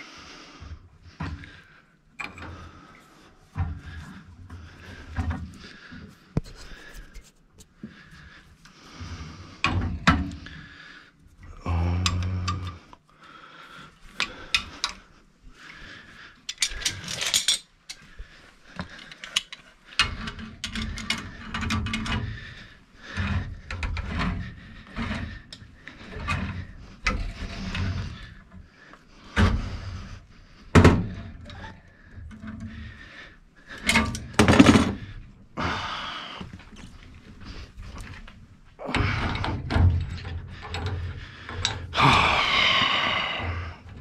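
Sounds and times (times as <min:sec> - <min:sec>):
hand tools clanking and scraping: 0:16.4 - 0:18.1, 0:18.8 - 0:28.6, 0:33.7 - 0:35.8, 0:37.4 - 0:43.4.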